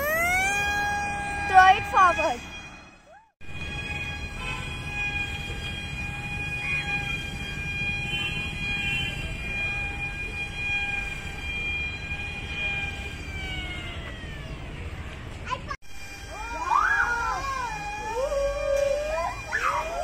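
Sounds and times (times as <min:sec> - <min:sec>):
toy propeller motor whining: 0:00.0 - 0:02.5, 0:09.8 - 0:14.9, 0:16.0 - 0:20.0.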